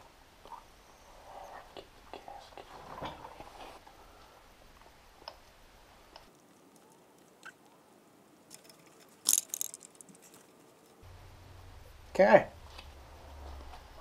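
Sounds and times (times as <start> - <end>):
faint clicks of parts: 8.5 - 11.0
sharp crunchy clatter: 8.5 - 11.0.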